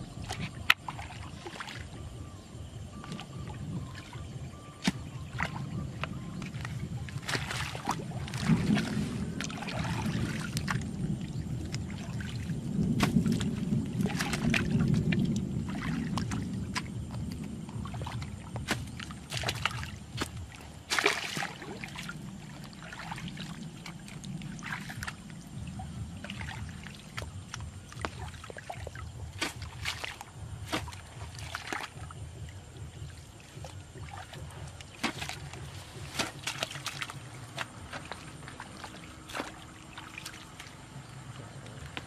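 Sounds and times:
steady low rumble: 0.0s - 42.0s
water splashing and sloshing: 0.0s - 42.0s
hoe chopping into wet mud: 6.5s - 8.9s, 12.9s - 14.6s, 18.6s - 21.6s, 29.3s - 32.0s, 35.0s - 38.2s, 39.3s - 39.6s.

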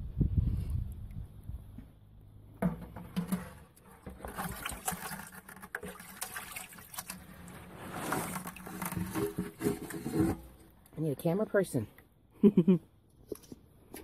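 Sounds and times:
colander scraping in plastic bucket: 2.6s - 10.7s.

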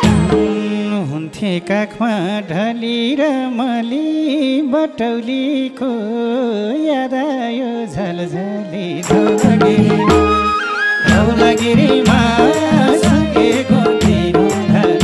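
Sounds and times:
drums: 0.0s - 0.8s, 9.1s - 15.0s
man singing folk song: 0.0s - 10.3s, 11.0s - 15.0s.

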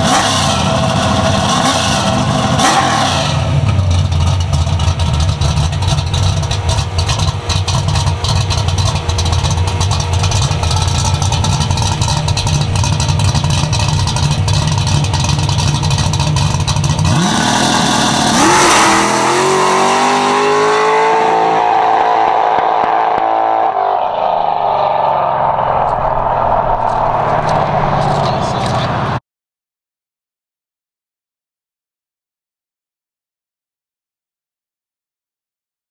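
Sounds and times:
car engine accelerating: 0.0s - 29.2s
car engine choppy idle: 3.6s - 18.3s.

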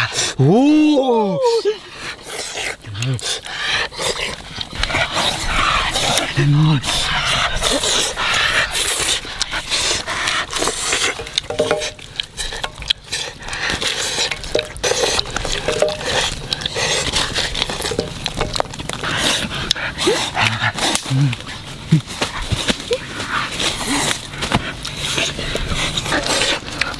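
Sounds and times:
clinks and scrapes in a metal wok: 10.4s - 19.0s.

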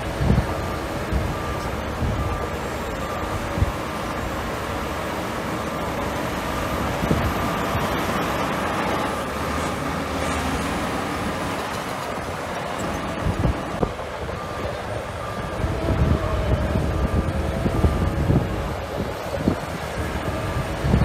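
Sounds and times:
diesel machinery running: 0.0s - 21.0s.

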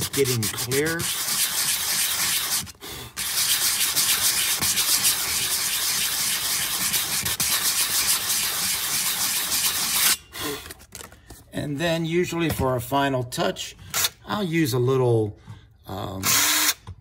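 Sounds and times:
sandpaper rubbing on plastic: 0.0s - 10.1s.

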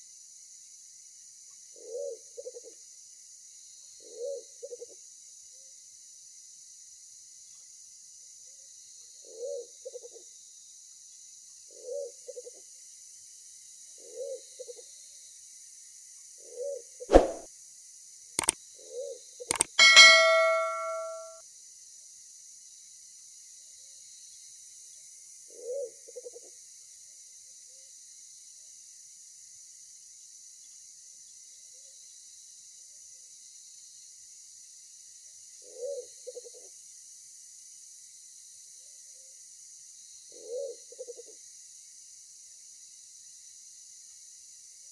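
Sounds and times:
sharp clicks: 19.5s - 20.8s
bell ding: 19.8s - 21.4s.

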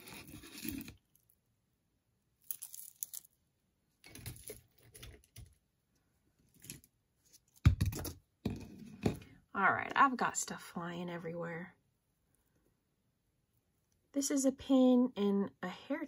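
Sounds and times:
beads clicking and rattling on board: 2.4s - 3.4s, 4.0s - 5.6s.

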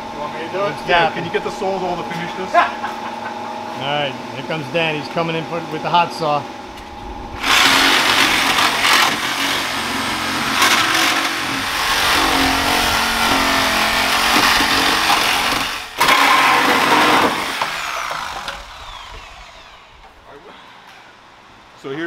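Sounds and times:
reciprocating saw cutting metal: 6.8s - 20.2s.

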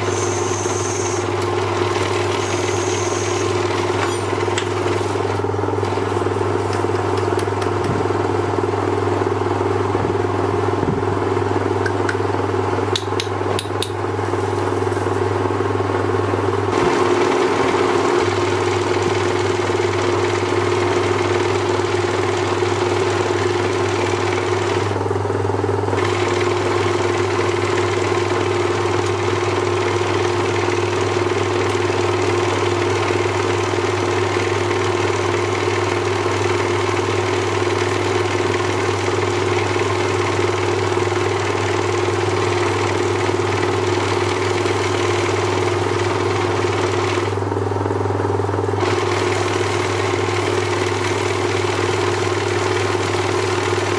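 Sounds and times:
lathe motor humming: 0.0s - 53.9s.

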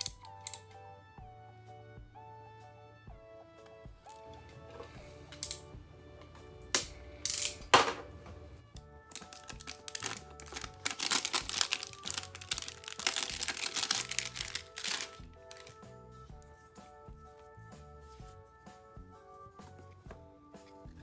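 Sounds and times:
plastic film crinkling: 9.1s - 15.8s
plastic film ripping: 9.1s - 15.8s.

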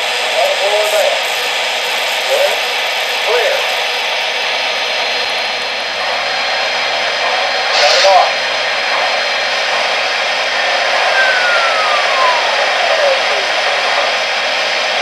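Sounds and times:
model steam locomotive hissing: 0.0s - 15.0s
short burst with wavering tone: 11.0s - 14.3s.

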